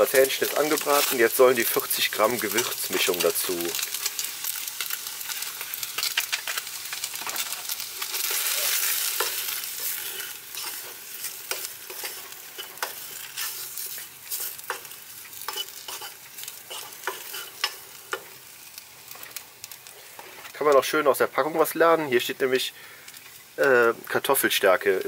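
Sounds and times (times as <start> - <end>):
chicken sizzling in a pan: 0.0 - 25.0
wooden spoon scraping a pan: 7.0 - 18.3.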